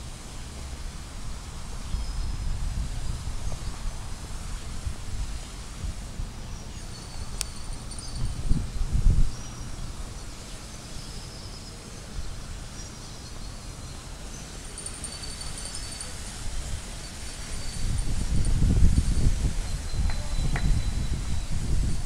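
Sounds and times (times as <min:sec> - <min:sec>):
wind buffeting microphone: 0:00.8 - 0:06.4, 0:07.2 - 0:10.4, 0:15.1 - 0:22.0.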